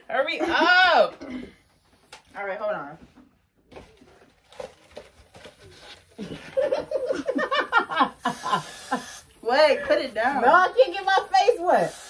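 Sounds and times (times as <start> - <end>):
young woman laughing loudly: 6.2 - 9.0.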